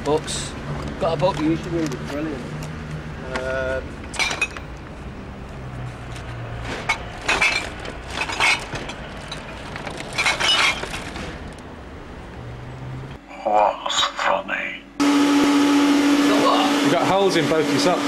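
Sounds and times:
glass bottles smashing: 4.1s - 4.6s, 6.9s - 9.5s, 10.1s - 11.2s.

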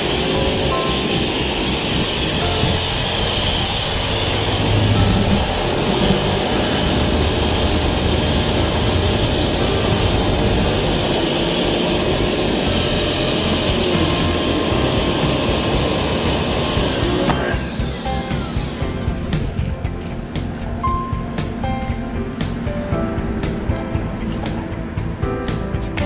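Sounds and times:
pressure washer jet on concrete: 0.0s - 18.8s.

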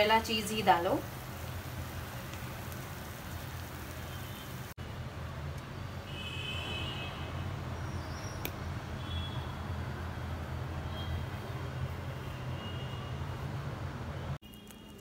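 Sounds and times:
pan cooking hiss: 0.0s - 4.8s.

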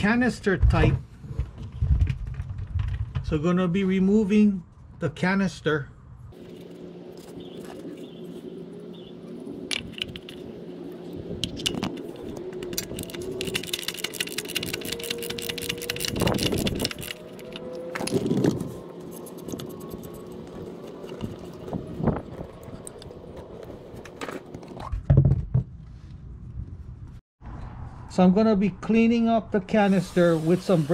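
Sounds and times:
ratchet clicking: 12.6s - 18.2s.

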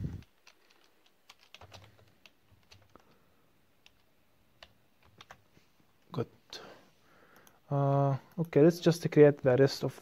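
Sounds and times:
computer keyboard keystrokes: 0.2s - 3.2s, 3.8s - 5.4s.

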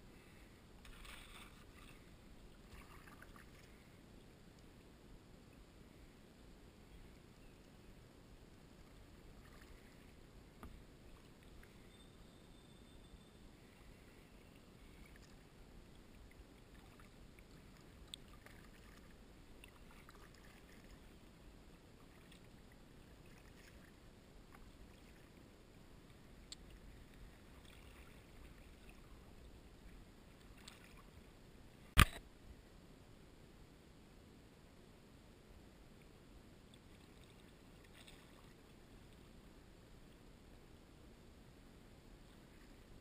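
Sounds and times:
kayak paddle in water: 0.0s - 6.1s, 8.6s - 12.3s, 13.4s - 32.3s, 36.0s - 40.2s.

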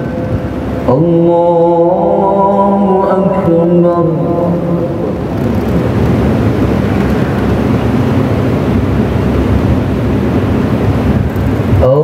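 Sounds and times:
crowd rumbling movement: 4.2s - 11.8s.

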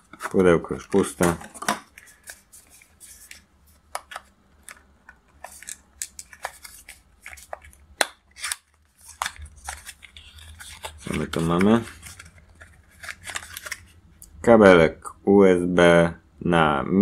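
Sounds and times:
cardboard box crinkling: 5.4s - 13.9s.

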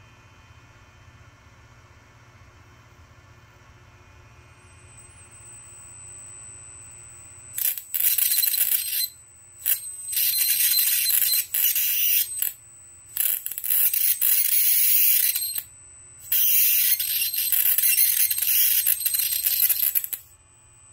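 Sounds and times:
high-voltage arc sizzling: 7.6s - 20.3s
transformer high-pitched whine: 7.6s - 20.3s.

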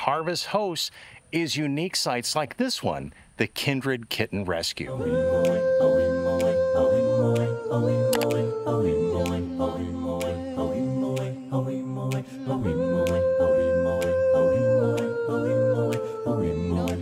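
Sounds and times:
choir-like vocal notes: 4.8s - 17.0s.

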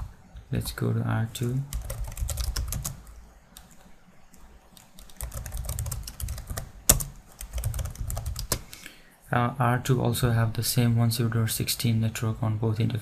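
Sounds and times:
typing on computer keyboard: 1.7s - 3.0s, 4.8s - 8.6s.

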